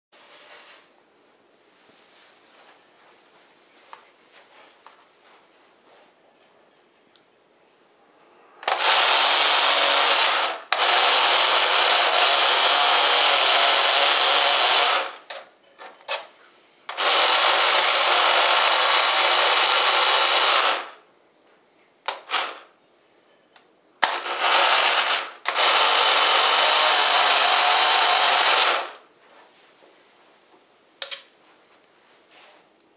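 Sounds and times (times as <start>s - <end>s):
electric buzzer buzzing: 8.6s - 15.3s, 16.9s - 21.0s, 24.0s - 29.0s.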